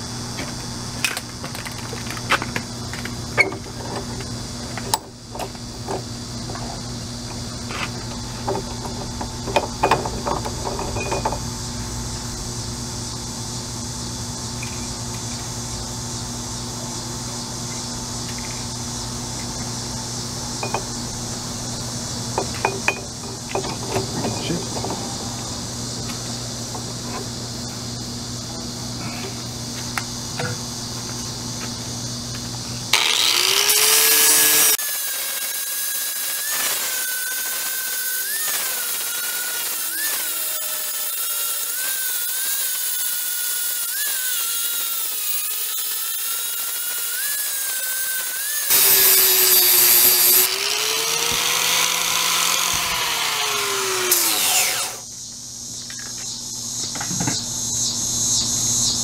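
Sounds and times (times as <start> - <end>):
angle grinder grinding metal: 32.9 - 55.1.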